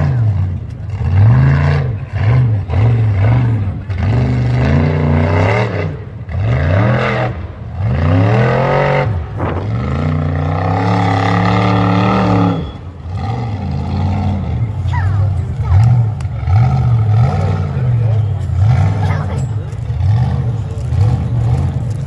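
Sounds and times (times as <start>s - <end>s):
buggy engine revving: 0.0s - 22.0s.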